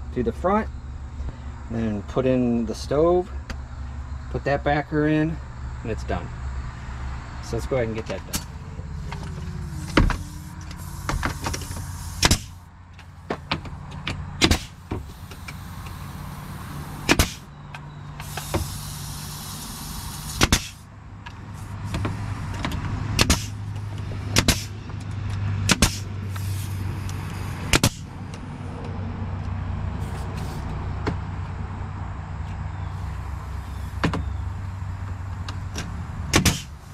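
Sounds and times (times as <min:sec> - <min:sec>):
nail gun shots: 0:12.2 - 0:12.6, 0:14.4 - 0:14.9, 0:17.0 - 0:17.5, 0:20.2 - 0:20.8, 0:23.2 - 0:23.6, 0:24.3 - 0:24.8, 0:25.6 - 0:26.1, 0:27.7 - 0:28.1, 0:36.3 - 0:36.7.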